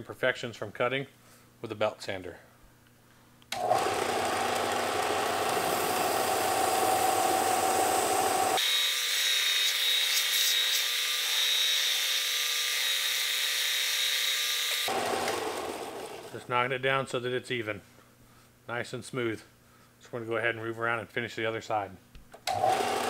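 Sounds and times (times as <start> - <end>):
belt sander sanding leather: 3.6 - 16.4.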